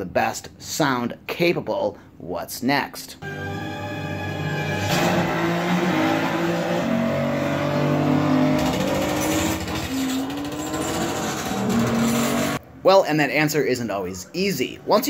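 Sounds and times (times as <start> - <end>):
car engines revving on speakers: 3.2 - 12.6.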